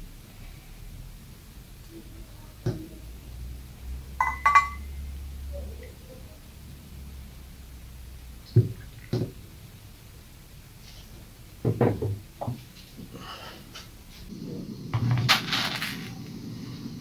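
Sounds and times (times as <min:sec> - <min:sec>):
metal pots knocking on wood: 0:04.2 - 0:04.9.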